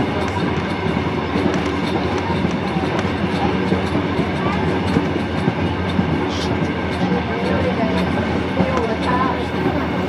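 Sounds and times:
carriage wheels rumbling: 0.0s - 10.0s
wheels clicking over rail joints: 0.0s - 10.0s.

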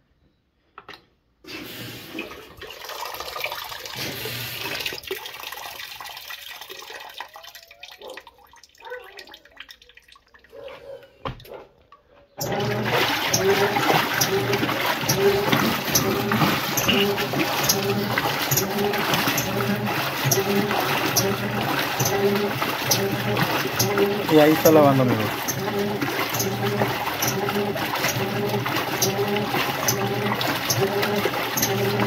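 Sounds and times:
washing machine agitator sloshing: 1.5s - 7.2s, 12.4s - 32.0s
water running into tub: 1.5s - 10.6s, 12.4s - 32.0s.

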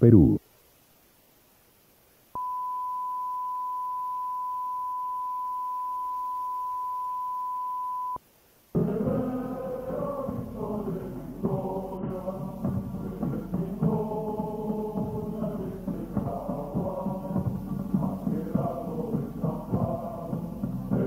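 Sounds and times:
steady test tone beep: 2.4s - 8.2s
music with chanting voices: 8.8s - 21.0s.

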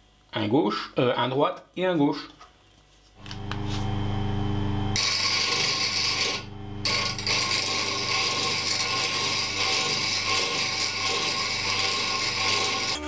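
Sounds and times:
bench grinder motor humming: 3.2s - 13.0s
chisel grinding hiss: 5.0s - 13.0s.

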